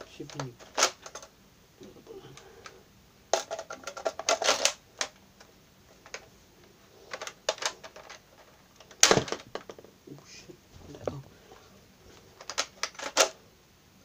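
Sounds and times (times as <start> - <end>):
rapid clicks and rattles: 2.3 - 5.2, 7.1 - 9.9, 12.3 - 13.4.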